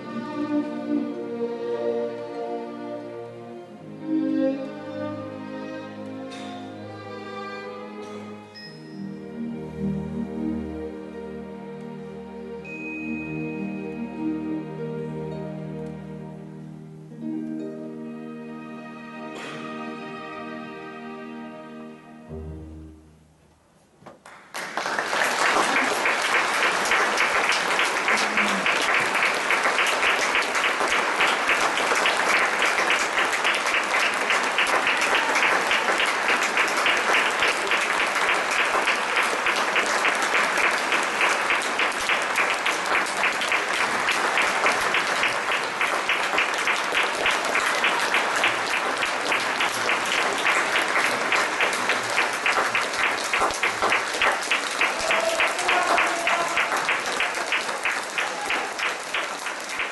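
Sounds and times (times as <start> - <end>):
audience applauding: 24.1 - 59.9.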